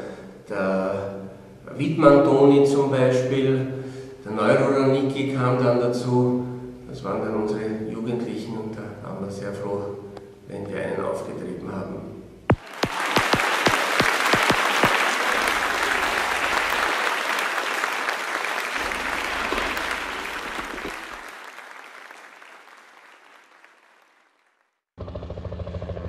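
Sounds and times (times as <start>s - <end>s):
crowd applauding: 12.5s - 24.8s.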